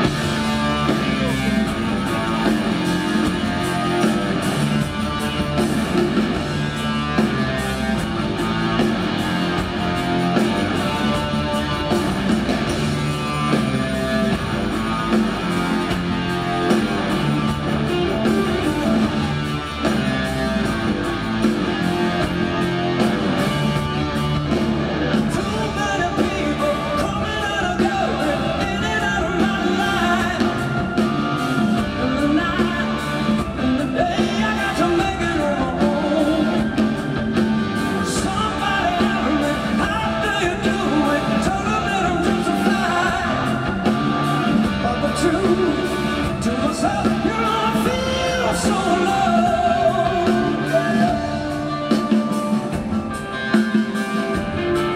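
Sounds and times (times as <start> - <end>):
live rock band playing: 0.0 - 54.9
man singing: 25.3 - 37.1, 37.9 - 52.7.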